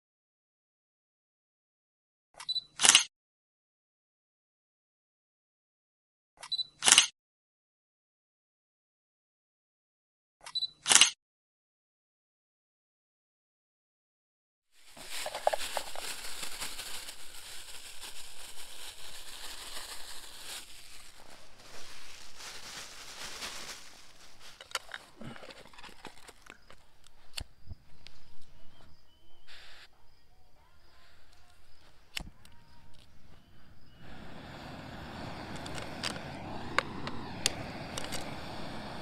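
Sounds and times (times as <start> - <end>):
plastic packaging rustling: 14.8 - 26.9.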